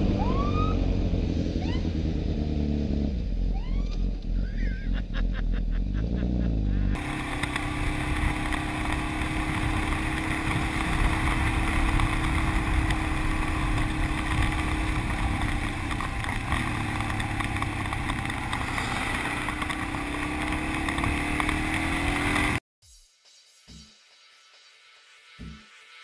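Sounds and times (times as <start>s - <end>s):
motorcycle engine running: 0.0s - 22.6s.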